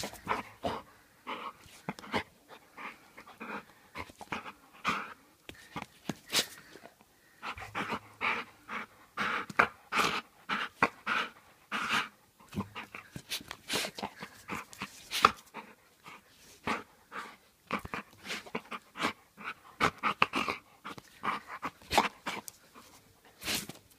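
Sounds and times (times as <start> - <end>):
dog panting hard: 7.4 - 23.1.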